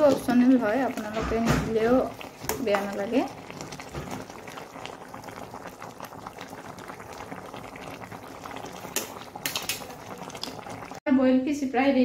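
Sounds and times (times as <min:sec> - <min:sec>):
stew bubbling in a pot: 0:00.0 - 0:11.0.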